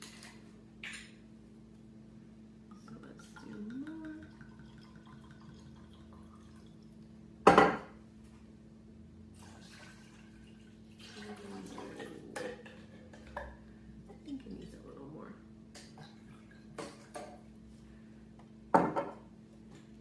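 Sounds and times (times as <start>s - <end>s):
liquid pouring into blender jar: 3.2s - 7.0s, 9.4s - 12.0s
liquid pouring into metal can: 9.4s - 12.1s.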